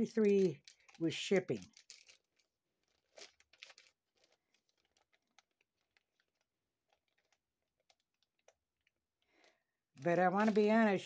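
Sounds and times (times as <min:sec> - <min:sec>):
plastic packaging rustling: 0:00.0 - 0:11.0.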